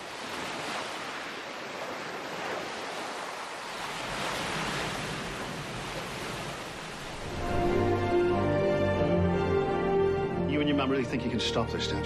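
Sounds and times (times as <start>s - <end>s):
waves breaking on beach: 0.0s - 7.7s.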